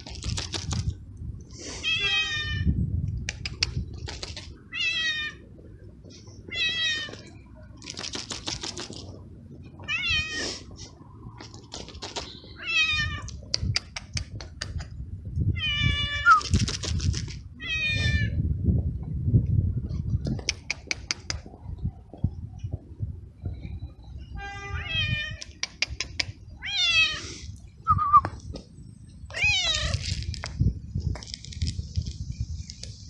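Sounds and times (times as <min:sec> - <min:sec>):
sharp clicks: 0:03.0 - 0:04.5, 0:13.2 - 0:15.0, 0:20.2 - 0:21.4.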